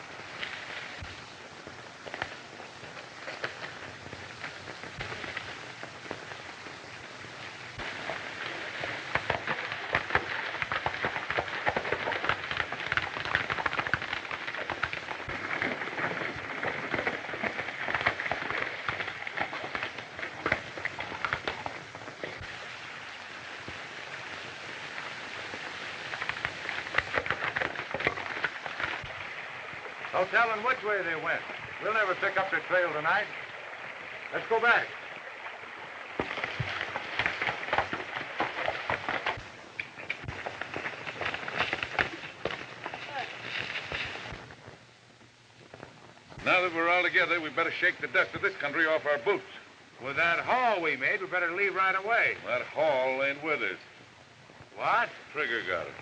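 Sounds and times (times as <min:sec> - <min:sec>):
people pushing through brush: 0:00.0 - 0:34.6, 0:35.3 - 0:44.9.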